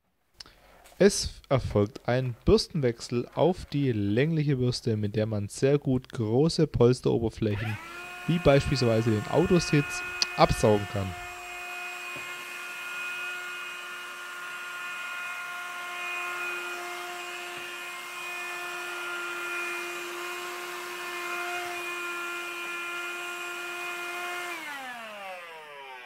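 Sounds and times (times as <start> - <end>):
hand vacuum whining: 7.4 - 26.0.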